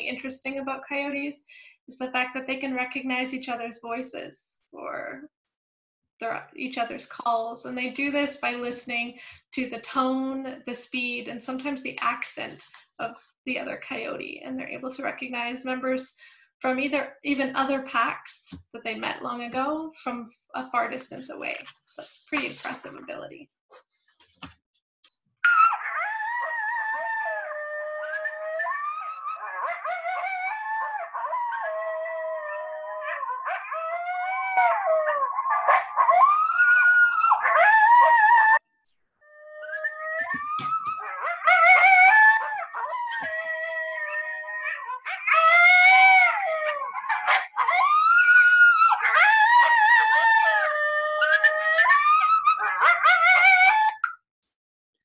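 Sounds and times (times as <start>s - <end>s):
coyotes yipping: 25.4s - 26.0s, 51.2s - 54.1s
coyotes howling: 39.3s - 54.0s.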